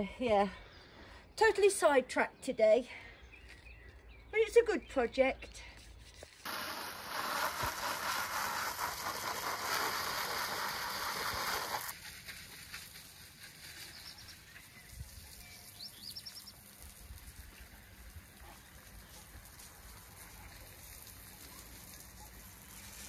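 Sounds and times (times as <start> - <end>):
hose spraying water on plastic: 6.4 - 23.0
bird chirps: 13.8 - 16.6.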